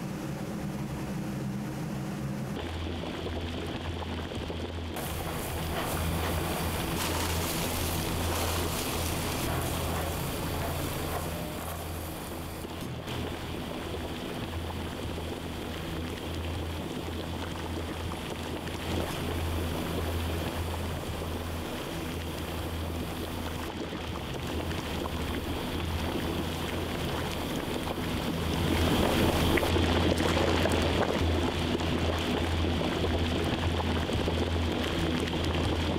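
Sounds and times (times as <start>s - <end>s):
gas burners rushing: 5.0s - 14.2s.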